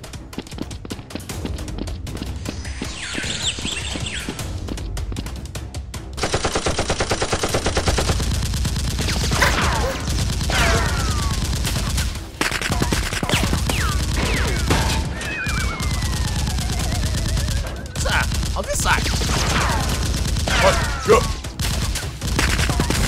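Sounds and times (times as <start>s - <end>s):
automatic gunfire: 6.2s - 15.0s, 15.6s - 23.0s
scattered gunshots: 6.2s - 23.0s.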